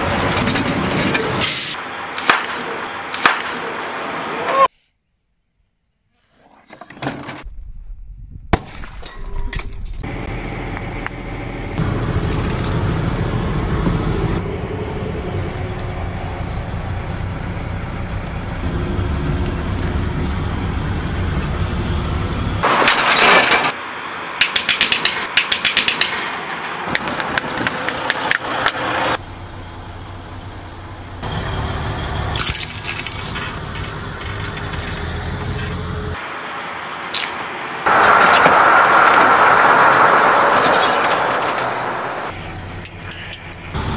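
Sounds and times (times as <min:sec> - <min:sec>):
objects cracking and breaking: 0:32.4 - 0:34.6.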